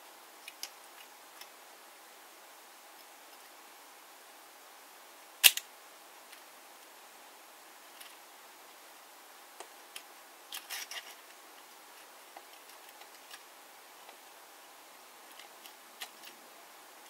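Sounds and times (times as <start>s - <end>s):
faint hiss: 0.0s - 17.0s
toy truck clicks and taps: 5.4s - 5.6s.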